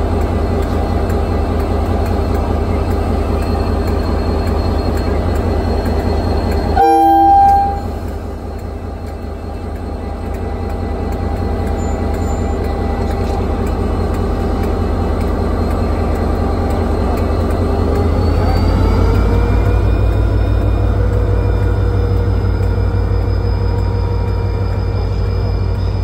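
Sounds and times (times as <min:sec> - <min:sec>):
locomotive horn blast: 0:06.8 - 0:08.1.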